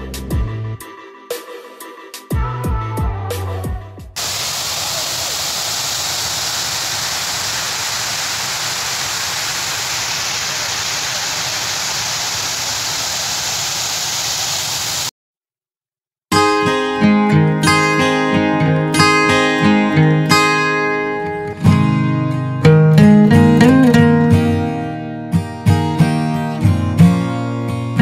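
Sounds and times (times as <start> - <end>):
water pouring over a weir: 4.2 - 15.1
guitar music: 16.3 - 28.0.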